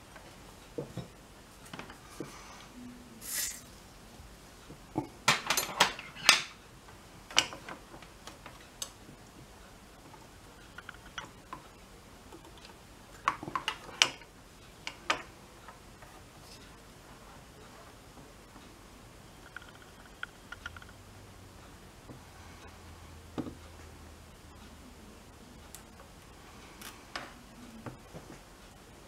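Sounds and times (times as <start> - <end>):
small clicks and taps: 10.0 - 11.7, 19.4 - 21.0.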